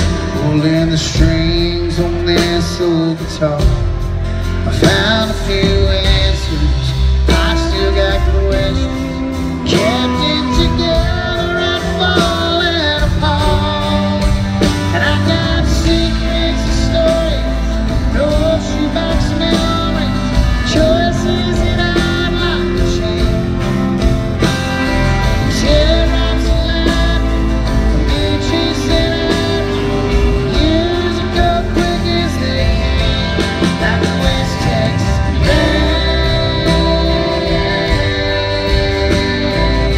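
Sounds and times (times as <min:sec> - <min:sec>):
country band playing: 0:00.0 - 0:39.9
man singing: 0:00.0 - 0:39.9
strummed acoustic guitar: 0:00.0 - 0:39.9.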